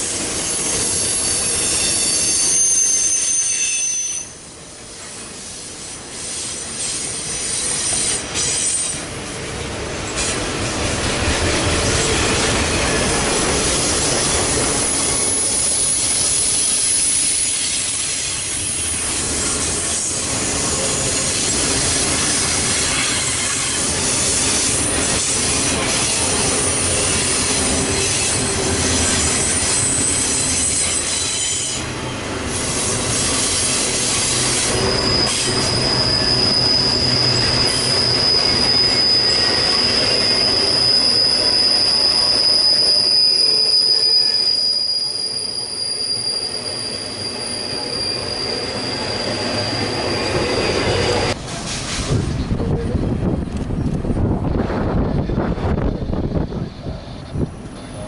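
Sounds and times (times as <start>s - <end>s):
train wheels rumbling on rail: 0.0s - 58.0s
high-pitched wheel squeal: 0.4s - 4.4s, 12.1s - 31.8s, 32.6s - 51.4s.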